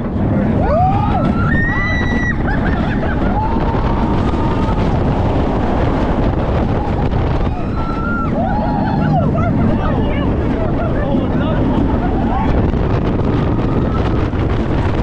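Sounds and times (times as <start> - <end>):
wind buffeting microphone: 0.0 - 15.0
riders screaming: 0.6 - 5.0, 6.7 - 9.7.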